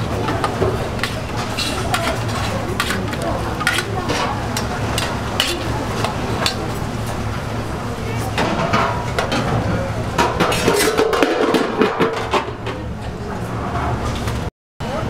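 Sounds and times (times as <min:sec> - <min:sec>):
metal tongs clinking on bowl: 0:01.0 - 0:05.7.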